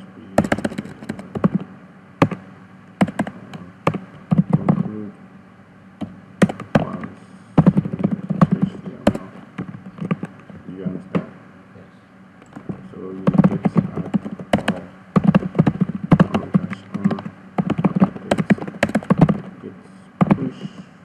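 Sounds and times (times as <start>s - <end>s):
keyboard typing clicks: 0.4s - 2.4s, 3.0s - 4.9s, 6.0s - 10.6s, 12.4s - 19.5s, 20.2s - 20.8s.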